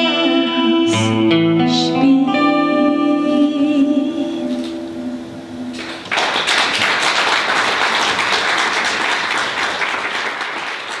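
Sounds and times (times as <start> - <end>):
audience applause: 5.8 - 11.0.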